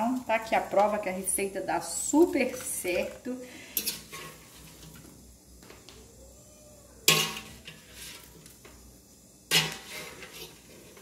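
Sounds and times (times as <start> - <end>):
kitchenware clatter: 7.1 - 8.4, 9.5 - 11.0.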